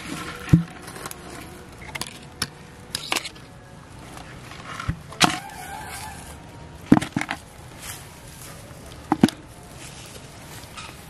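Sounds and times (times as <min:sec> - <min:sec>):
rustling in grass: 0:07.4 - 0:11.0.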